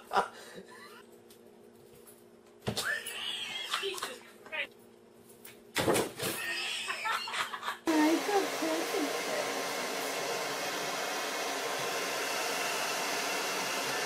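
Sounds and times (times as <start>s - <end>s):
hair dryer blowing: 7.9s - 14.0s.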